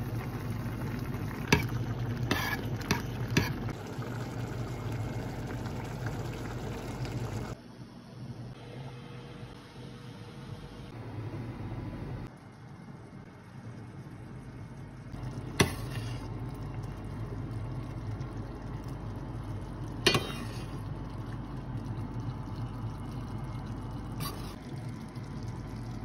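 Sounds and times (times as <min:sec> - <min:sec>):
steady low hum: 0:00.0 - 0:26.0
liquid pouring and splashing: 0:15.2 - 0:26.0.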